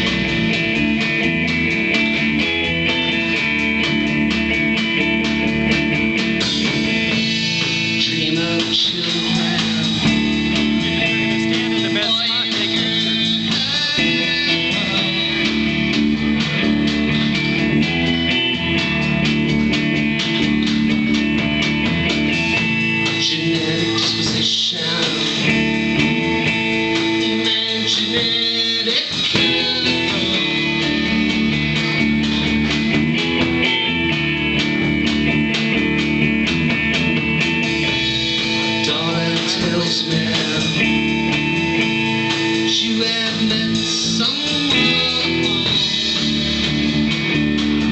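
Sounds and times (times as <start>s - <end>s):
drum kit: 0.0s - 47.9s
electric guitars: 0.0s - 47.9s
person singing: 7.1s - 10.4s, 11.0s - 15.9s, 23.0s - 26.2s, 27.0s - 31.5s, 38.7s - 41.3s, 42.4s - 46.7s.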